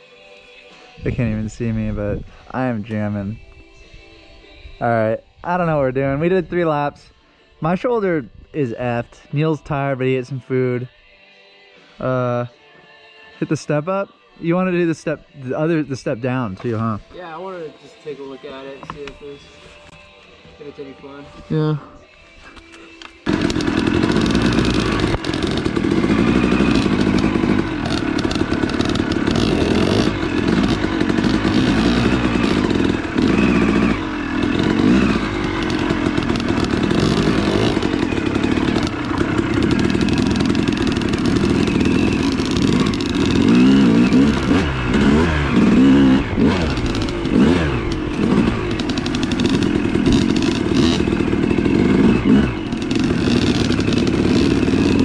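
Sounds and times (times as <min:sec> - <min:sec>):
dirt bike engine revving: 0:23.2 - 0:55.0.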